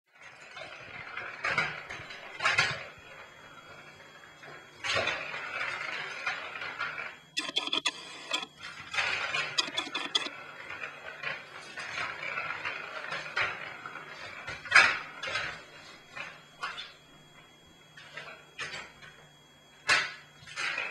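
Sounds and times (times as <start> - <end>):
plastic ball rolling in toy track: 0.2 - 16.8.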